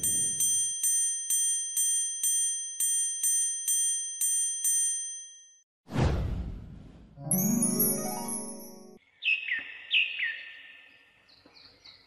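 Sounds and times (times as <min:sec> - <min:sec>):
bright metallic chime strikes: 0:07.3 - 0:09.0.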